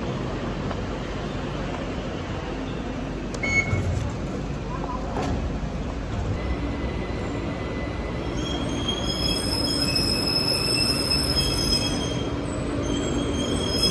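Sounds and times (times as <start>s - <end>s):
train rumbling on rails: 0.0s - 13.9s
train wheels squealing: 6.8s - 13.9s.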